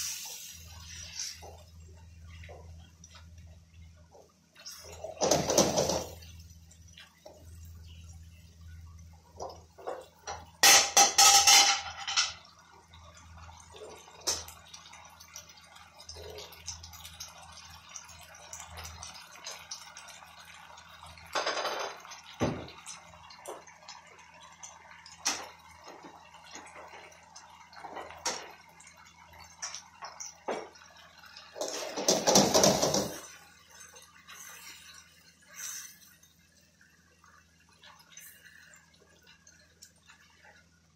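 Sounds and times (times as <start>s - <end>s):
sauce bubbling and crackling: 12.4s - 40.9s.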